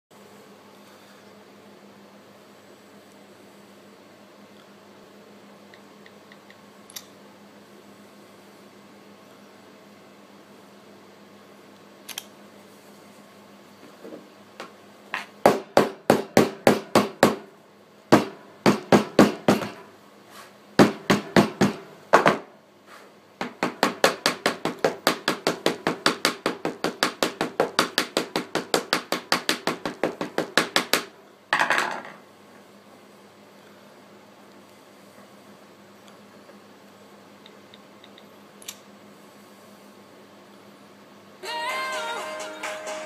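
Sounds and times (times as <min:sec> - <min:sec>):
hammer striking phone screen: 0:18.1 - 0:19.8, 0:23.4 - 0:31.1.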